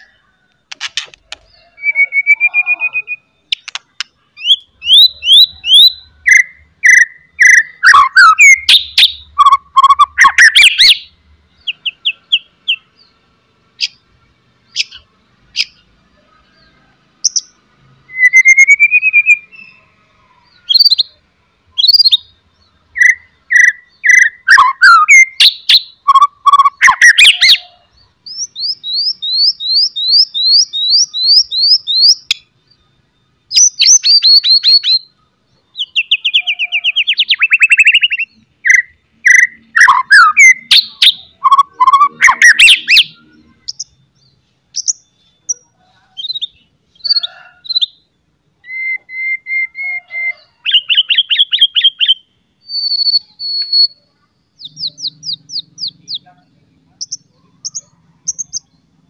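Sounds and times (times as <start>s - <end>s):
bird clicking chatter: 0.6s - 1.5s, 3.5s - 4.2s
songbird whistling and trilling: 1.4s - 3.8s, 4.4s - 12.8s, 17.3s - 19.8s, 20.6s - 21.2s, 21.8s - 32.9s, 33.5s - 56.2s, 57.0s - 58.8s.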